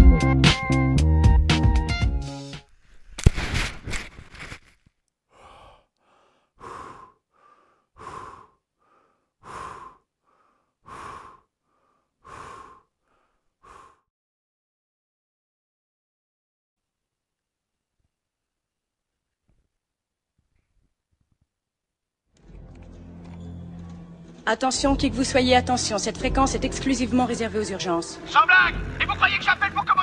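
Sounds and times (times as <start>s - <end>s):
person breathing hard: 5.3s - 14.1s.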